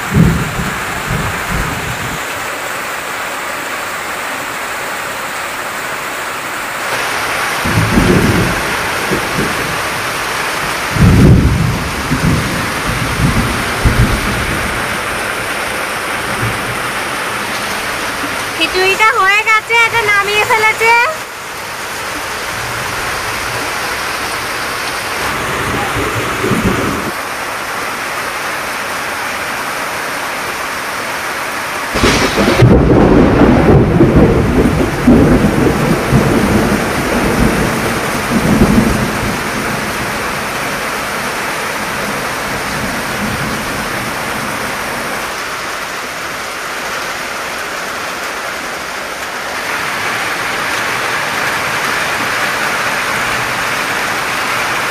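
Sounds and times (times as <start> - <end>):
thunder rumbling: 0.0 - 2.3, 7.1 - 20.8, 21.6 - 27.2, 31.9 - 44.8
heavy rain pouring: 0.0 - 54.9.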